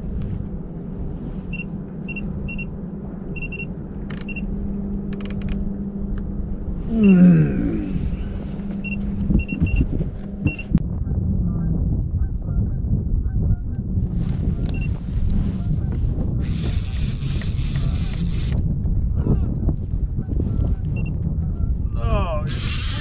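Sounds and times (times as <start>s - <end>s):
boat motor humming: 1.9s - 10.8s, 16.4s - 18.6s, 22.5s - 23.0s.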